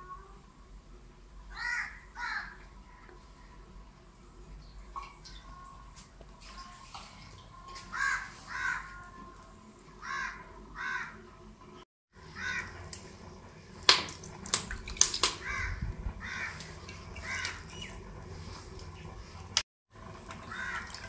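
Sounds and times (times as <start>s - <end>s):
crows cawing: 1.5s - 2.6s, 7.9s - 9.2s, 10.0s - 11.2s, 12.3s - 12.7s, 15.4s - 17.6s, 20.4s - 21.0s.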